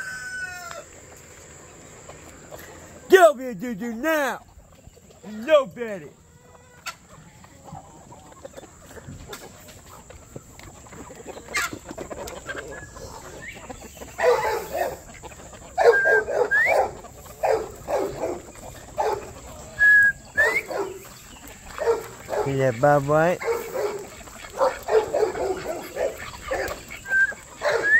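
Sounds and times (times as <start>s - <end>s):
chickens clucking: 0.0s - 27.9s
bird whistling rising call: 15.9s - 16.8s, 19.8s - 20.7s, 27.0s - 27.9s.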